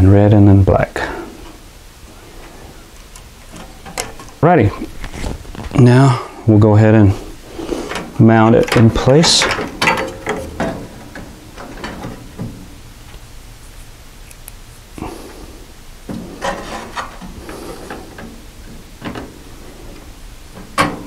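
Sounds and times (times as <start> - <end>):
hands rubbing and clicking in metal cabinet: 3.0 - 6.0, 7.0 - 15.1, 16.1 - 21.0.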